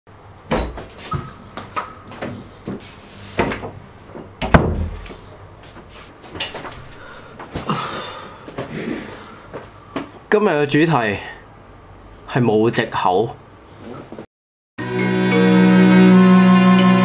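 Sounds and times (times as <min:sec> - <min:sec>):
door closing thud: 0:04.4 - 0:05.0.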